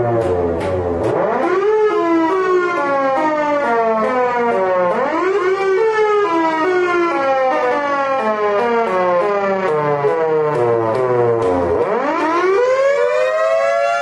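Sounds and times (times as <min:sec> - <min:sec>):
siren wailing: 0:00.0 - 0:14.0.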